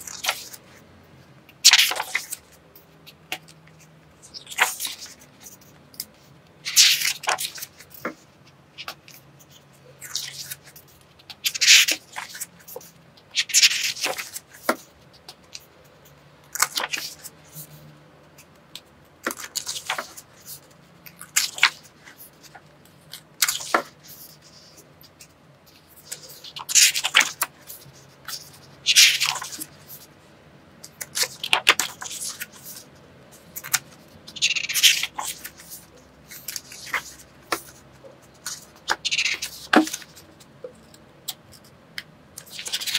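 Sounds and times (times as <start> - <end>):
pages turning: 0.0 - 0.8, 1.6 - 15.7, 16.5 - 17.8, 19.2 - 30.1, 30.8 - 41.7, 42.4 - 42.9.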